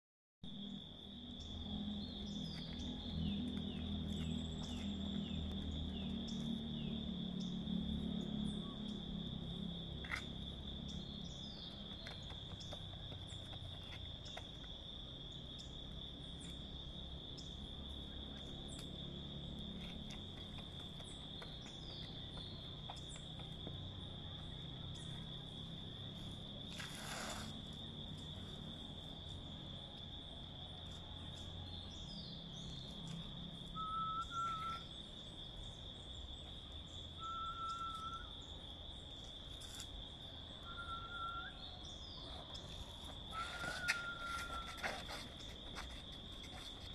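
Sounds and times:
insects droning: 0.5 - 46.9
bird whistling: 33.8 - 34.9, 37.2 - 38.3, 40.6 - 41.8, 43.3 - 44.7.

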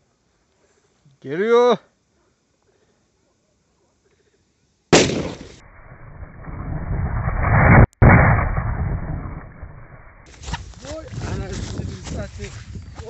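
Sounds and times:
plastic bottle bursting bang: 5.0 - 5.4
loud rushing noise: 5.6 - 10.3.

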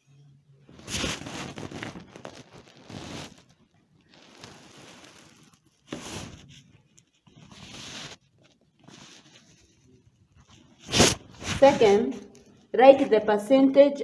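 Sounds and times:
marker scraping on whiteboard: 4.4 - 12.3.

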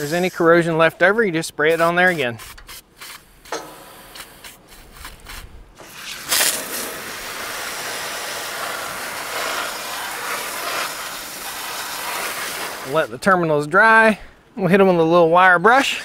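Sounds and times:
hose water spraying on metal: 0.0 - 0.7, 1.6 - 13.2.

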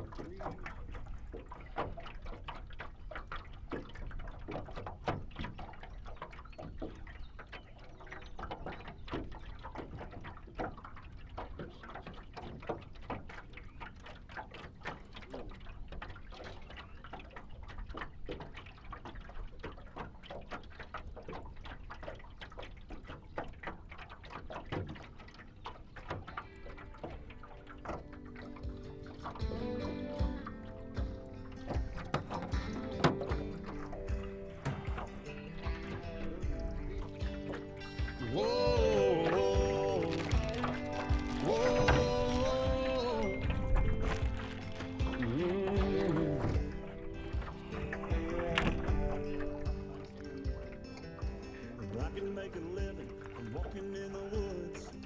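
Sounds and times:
water splashing and dripping: 0.0 - 55.0
wind rumble on microphone: 41.2 - 54.6.

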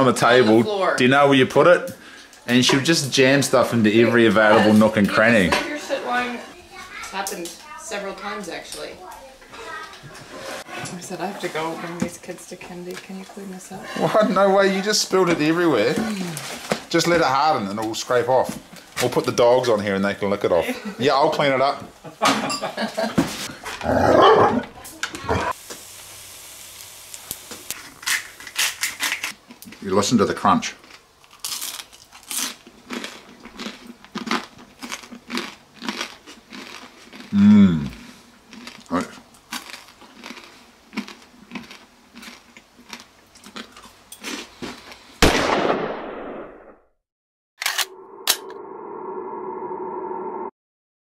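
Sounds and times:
steady hiss: 24.9 - 29.3.

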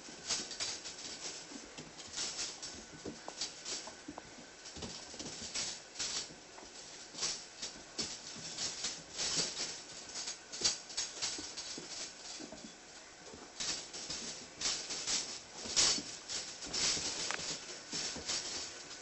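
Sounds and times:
puppy claws scratching on floor: 0.0 - 19.0
hand rustling: 6.2 - 19.0.

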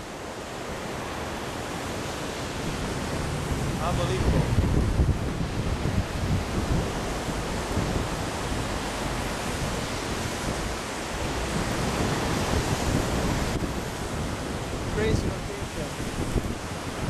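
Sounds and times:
rush of wind: 0.0 - 17.0
surf breaking on shore: 0.0 - 17.0
wind buffeting microphone: 0.0 - 17.0.

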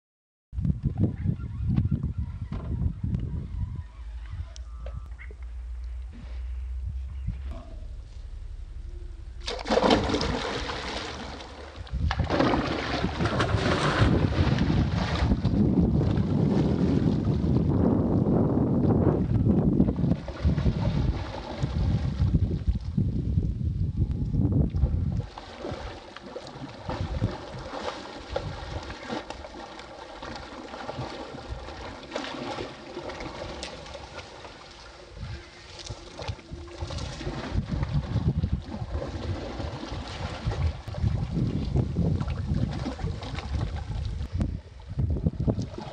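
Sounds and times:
faint steady hum: 2.9 - 12.3
fish thrashing and splashing: 9.4 - 15.5, 25.2 - 41.3.

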